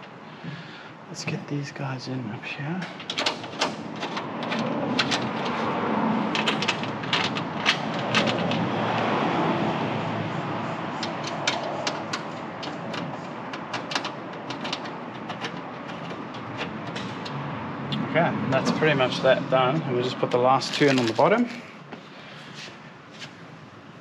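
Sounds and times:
rushing background noise: 0.0s - 24.0s
screws and metal parts clicking: 10.9s - 17.4s.

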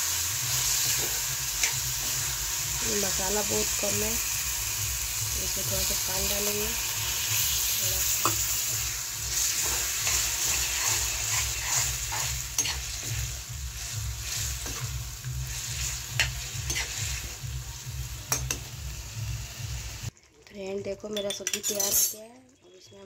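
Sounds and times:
curry gravy sizzling in a pan: 0.0s - 20.6s
steel ladle scraping a pan: 5.9s - 17.4s.

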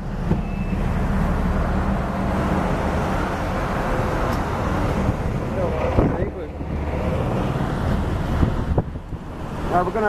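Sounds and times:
car engine and tyre noise: 0.0s - 10.0s.

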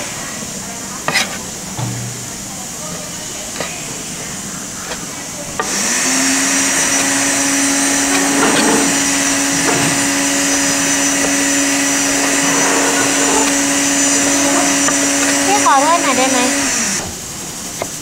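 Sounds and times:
electric motor humming: 5.6s - 17.0s.

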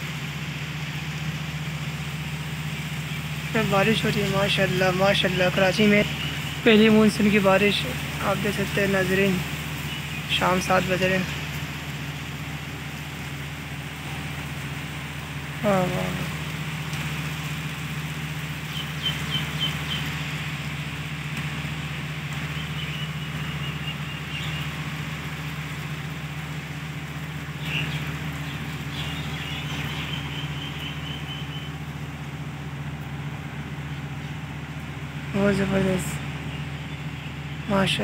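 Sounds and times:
low engine hum: 0.0s - 38.0s
rain falling: 0.0s - 38.0s
bird chirping and trilling: 5.8s - 7.1s, 9.8s - 10.8s, 18.6s - 20.2s, 22.5s - 24.8s, 27.5s - 31.8s, 36.4s - 38.0s.

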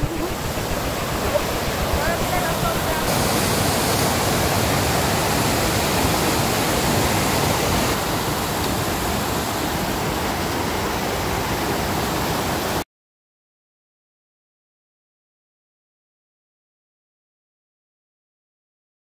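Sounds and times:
water rushing down small waterfall: 0.0s - 12.8s.

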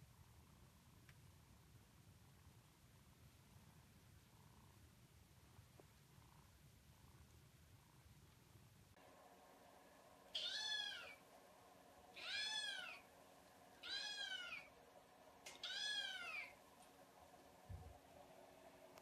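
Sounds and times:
kitten meowing: 10.4s - 11.2s, 12.2s - 13.0s, 13.8s - 14.7s, 15.5s - 16.6s.

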